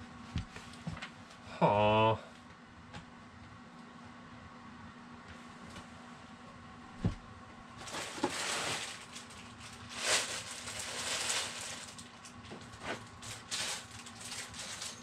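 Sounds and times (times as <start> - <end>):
rustling and handling noises: 7.8 - 15.0.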